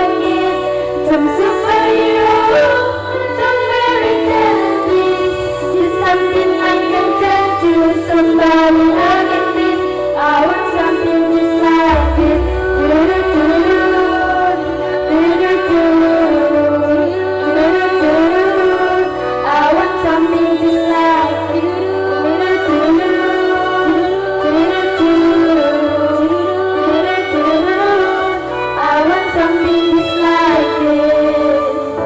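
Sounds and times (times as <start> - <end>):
instrumental accompaniment with bass: 0.0 - 32.0
girls' choir singing: 11.8 - 16.8.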